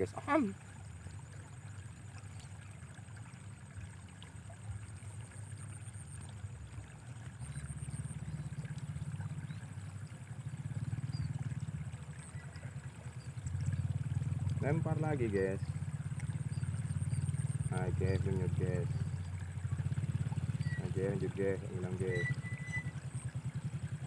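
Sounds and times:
small motorbike engine: 5.7 - 24.0.

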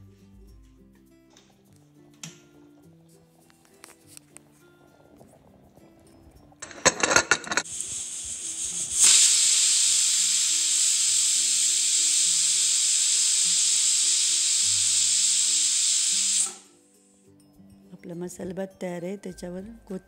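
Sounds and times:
pressure cooker whistle hissing: 6.6 - 16.8.

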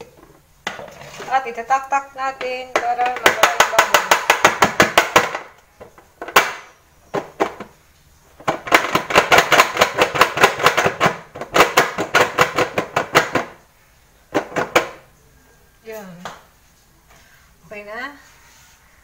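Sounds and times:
soap mold knocking on metal tray: 2.2 - 7.8, 8.4 - 13.6, 14.3 - 15.1.

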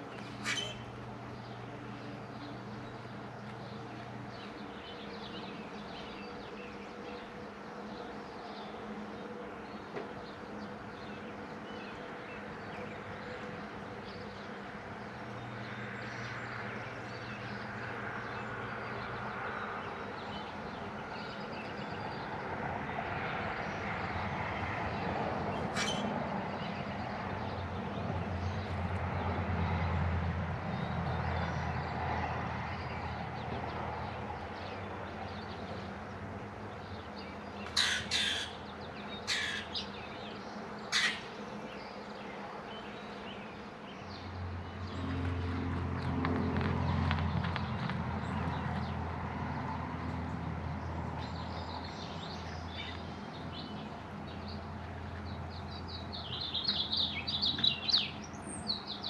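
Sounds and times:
vehicle engine hum: 0.0 - 59.0.

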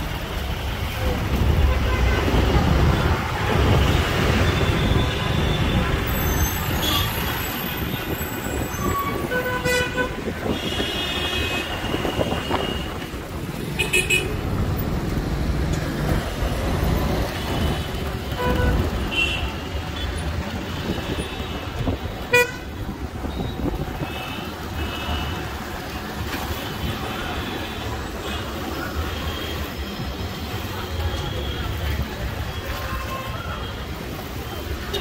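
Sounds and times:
engine and wind rumble: 0.0 - 24.8
vehicle horns tooting: 8.6 - 13.0, 20.8 - 25.5.

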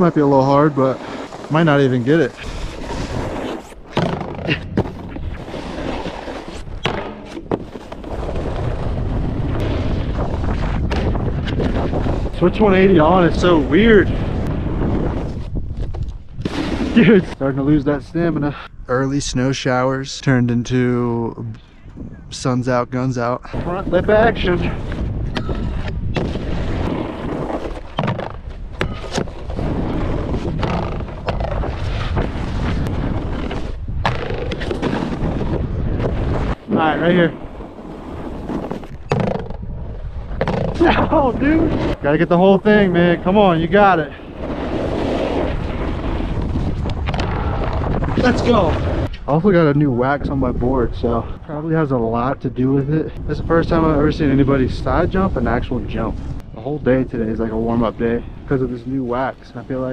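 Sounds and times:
snowboard scraping over snow: 0.0 - 18.5, 23.5 - 49.1, 53.5 - 59.9
snowboard hissing and scraping on snow: 0.2 - 3.8, 16.4 - 17.4, 44.0 - 46.7
wind on microphone: 4.3 - 19.5, 21.3 - 22.6, 23.4 - 59.9.

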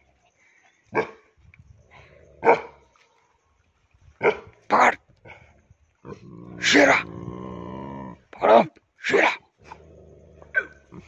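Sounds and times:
dog barking: 2.4 - 2.8.

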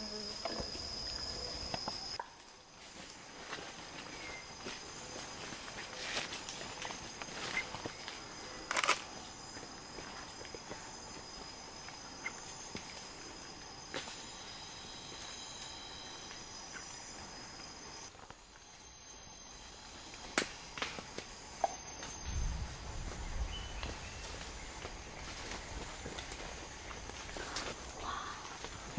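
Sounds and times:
insects droning: 0.0 - 28.9
sharp snaps in undergrowth: 8.6 - 9.2, 20.2 - 22.2, 23.8 - 28.8.

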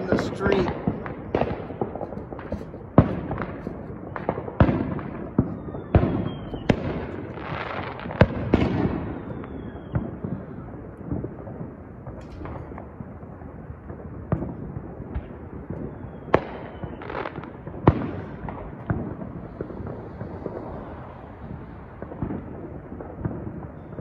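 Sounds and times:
fireworks bangs: 0.0 - 24.0
falling firework whistle: 5.4 - 6.8, 8.5 - 10.8, 15.8 - 17.3.

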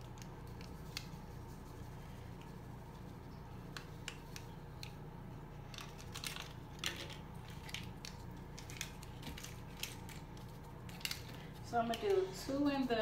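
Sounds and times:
low steady hum: 0.0 - 13.0
packet crinkling: 5.6 - 12.3.

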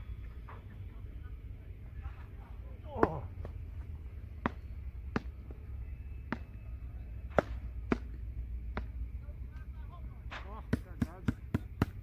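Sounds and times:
paddles striking ball: 2.9 - 5.6, 6.2 - 6.6, 7.2 - 9.0.

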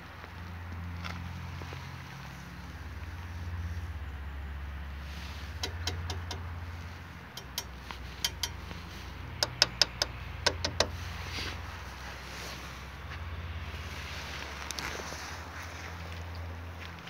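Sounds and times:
fingers tapping metal guard: 5.6 - 6.5, 7.4 - 8.8, 9.4 - 11.0.

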